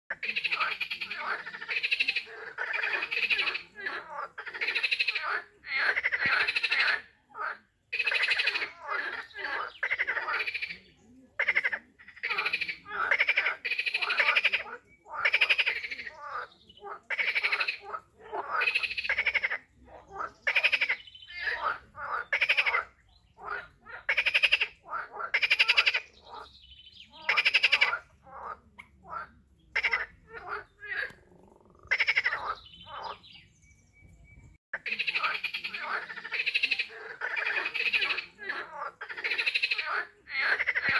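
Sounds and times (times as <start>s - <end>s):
animals calling in chorus: 0.1s - 33.3s, 34.8s - 40.9s.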